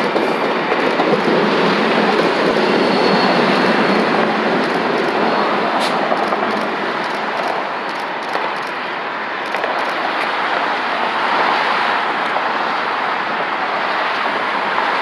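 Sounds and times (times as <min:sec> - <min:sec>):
train pulling away: 0:00.0 - 0:08.0
expressway traffic: 0:00.0 - 0:15.0.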